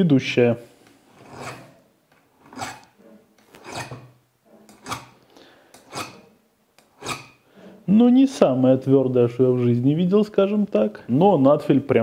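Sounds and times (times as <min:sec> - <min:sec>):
file scraping metal gear: 0:01.1 - 0:01.8, 0:02.4 - 0:07.4.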